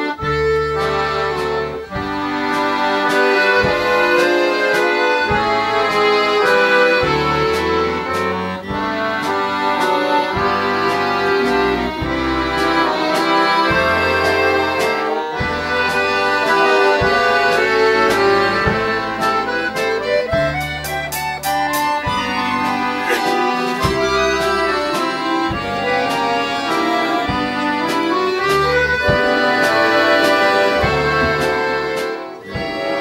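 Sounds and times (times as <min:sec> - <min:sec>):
accordion orchestra playing: 0:00.0 - 0:33.0
drum kit strikes: 0:01.9 - 0:33.0.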